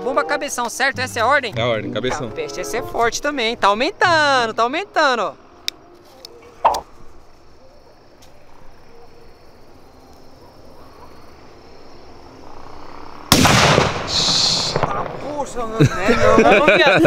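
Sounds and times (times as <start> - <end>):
firecracker loud bang: 13.3 - 15.5.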